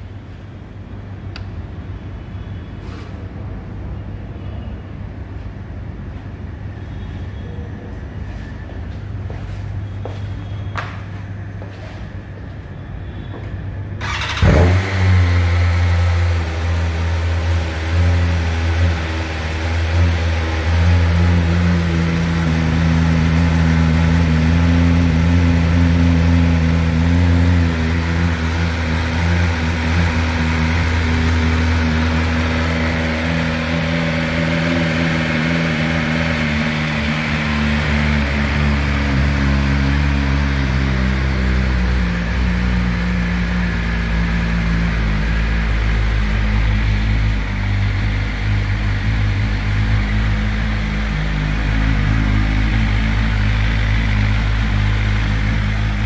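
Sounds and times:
motorcycle engine starting and idling: 13.9s - 56.0s.

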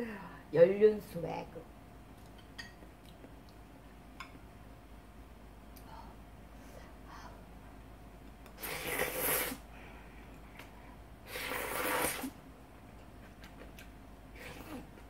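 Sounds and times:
loud noodle slurps: 8.6s - 9.6s, 11.3s - 12.4s.

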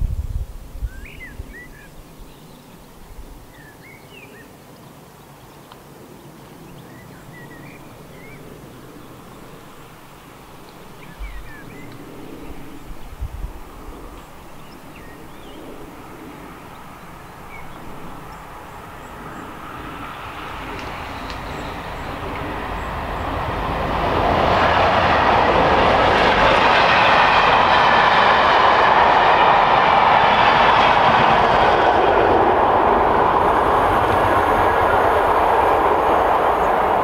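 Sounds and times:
distant diesel locomotive engines: 0.1s - 37.0s
birds chirping: 0.9s - 23.6s
low outdoor rumble: 7.4s - 37.0s.

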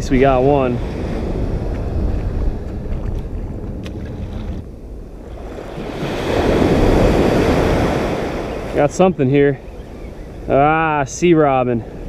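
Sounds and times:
surf on beach: 0.0s - 12.0s
wind rumbling on microphone: 0.0s - 12.0s.

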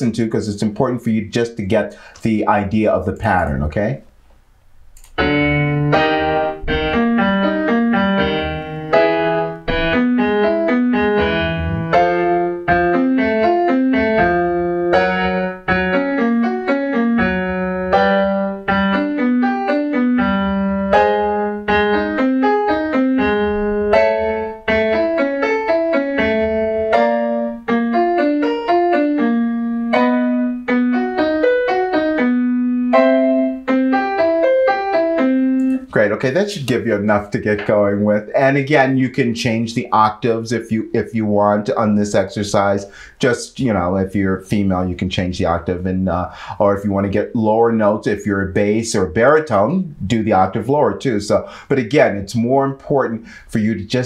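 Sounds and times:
piano playing fast runs: 5.2s - 39.4s.

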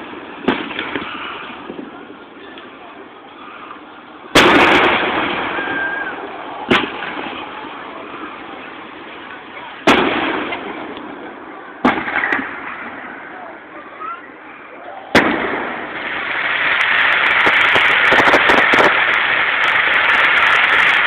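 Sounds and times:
fireworks shells bursting: 15.1s - 21.0s.

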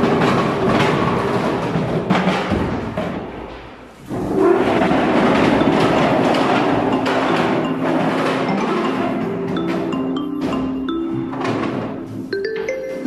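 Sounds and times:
percussive background music: 4.3s - 13.0s.

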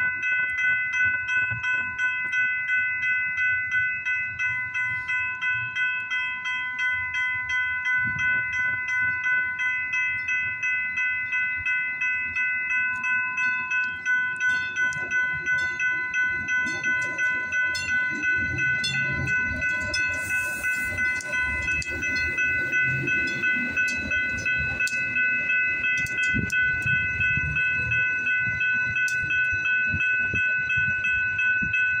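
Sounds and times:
crossing warning bell dinging: 0.0s - 32.0s
train wheel clicks: 12.3s - 30.3s
train rumbling past: 14.4s - 30.3s.

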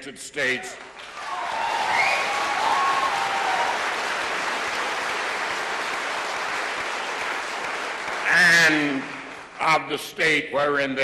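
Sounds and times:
audience applauding: 0.8s - 9.8s
crowd shout: 1.2s - 3.9s.

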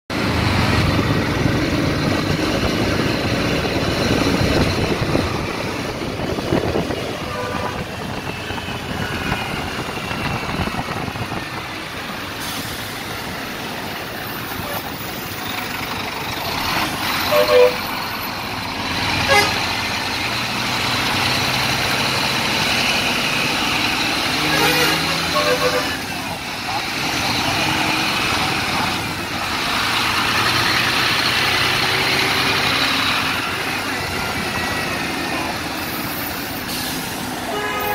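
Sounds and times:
city traffic road noise: 0.1s - 37.9s
coach diesel engine: 0.1s - 37.9s
vehicle horn toots: 7.1s - 8.0s, 17.2s - 17.9s, 19.2s - 19.6s, 24.4s - 26.1s, 37.5s - 37.9s.

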